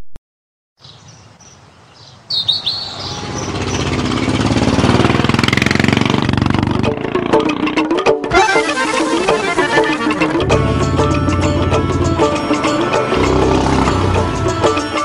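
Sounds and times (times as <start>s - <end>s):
birds chirping: 0.8s - 6.0s
motor engine running: 3.0s - 8.6s, 9.2s - 14.8s.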